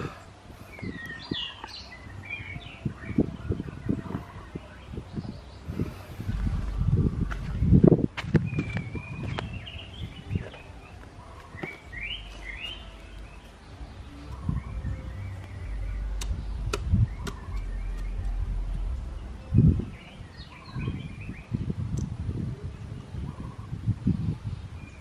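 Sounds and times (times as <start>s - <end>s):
birds chirping: 0.0s - 25.0s
low rumble: 4.8s - 10.2s, 12.1s - 22.4s.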